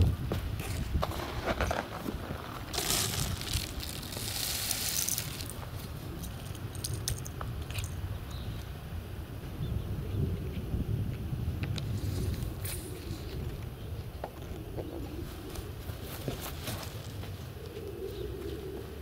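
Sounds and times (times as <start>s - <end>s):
wind rumble on microphone: 0.0s - 19.0s
clicks and crackles: 2.6s - 8.7s.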